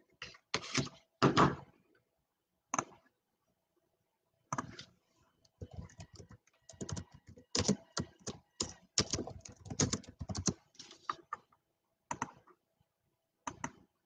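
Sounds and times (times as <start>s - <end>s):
computer mouse clicks: 2.7s - 3.0s, 4.5s - 11.4s, 12.1s - 12.5s, 13.4s - 13.9s
typing on computer keyboard: 5.6s - 11.4s, 12.1s - 12.4s.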